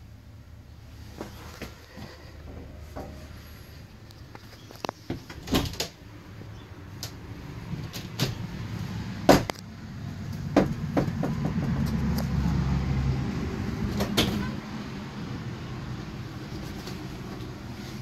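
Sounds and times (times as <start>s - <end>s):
cupboard doors clicking and knocking: 9.3s - 9.5s, 10.4s - 11.9s.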